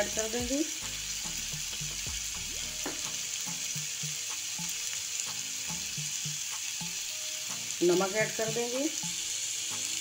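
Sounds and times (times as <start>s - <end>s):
vegetables sizzling in hot oil: 0.0s - 10.0s.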